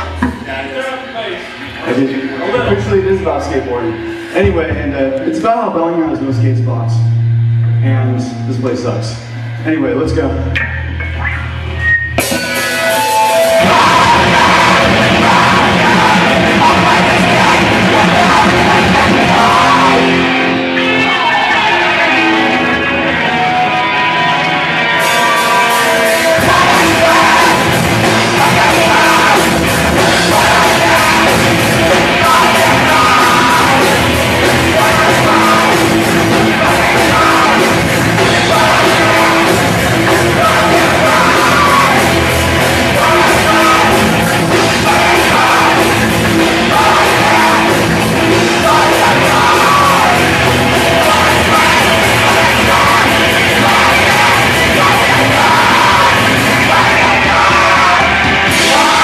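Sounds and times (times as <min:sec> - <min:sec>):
distorted guitars: 0:00.0 - 0:59.0
drums: 0:00.0 - 0:59.0
punk band playing: 0:00.0 - 0:59.0
shouted vocals: 0:13.1 - 0:23.8, 0:25.0 - 0:59.0.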